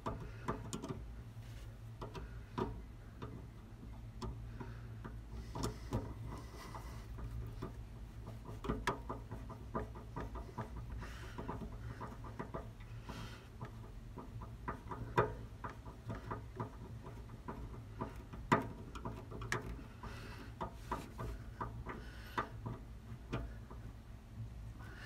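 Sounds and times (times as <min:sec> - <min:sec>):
metal screws clicking and tapping: 0:00.0 - 0:01.0.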